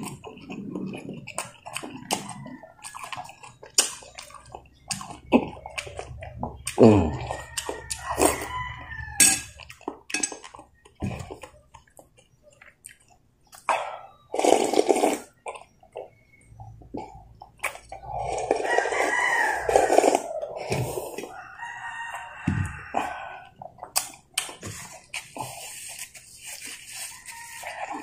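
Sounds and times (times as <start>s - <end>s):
rooster crowing: 7.0s - 9.6s, 18.5s - 23.5s, 27.0s - 28.0s
slurping broth: 13.7s - 16.2s, 16.9s - 28.0s.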